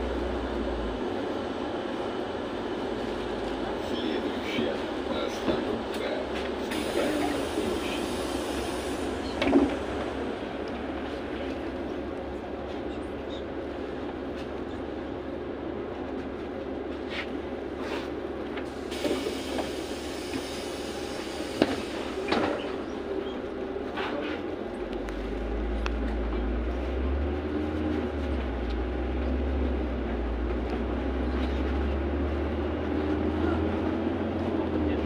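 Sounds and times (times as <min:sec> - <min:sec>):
bus engine idling: 0:00.0 - 0:35.0
air hiss: 0:06.7 - 0:09.3, 0:18.8 - 0:22.2.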